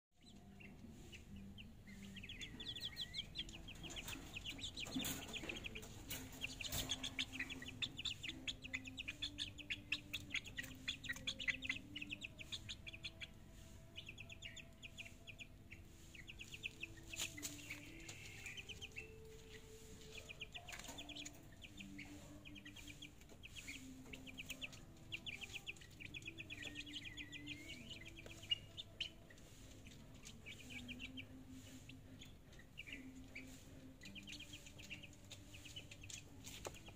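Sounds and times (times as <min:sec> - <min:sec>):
chicks peeping: 0:00.2 - 0:36.9.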